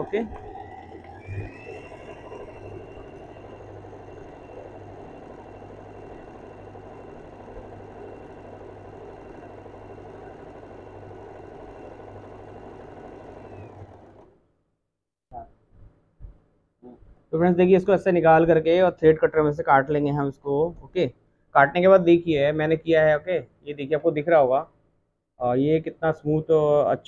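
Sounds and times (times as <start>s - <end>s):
electric sewing machine running: 0.0s - 14.4s.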